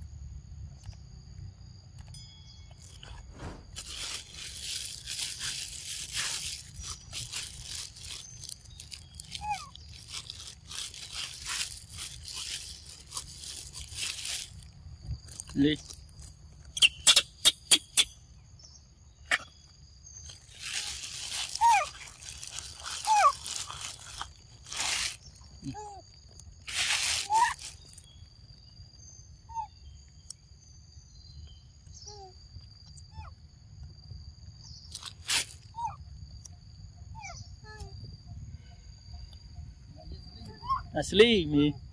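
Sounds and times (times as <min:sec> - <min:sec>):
monkey crunching fruit: 0:04.2 - 0:14.6.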